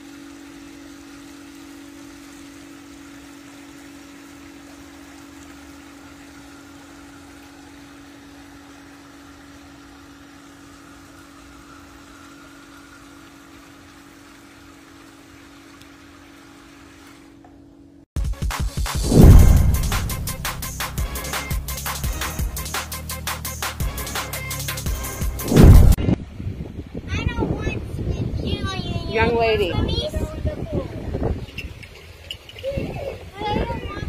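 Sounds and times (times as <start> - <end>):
loud music: 18.2 - 26.0.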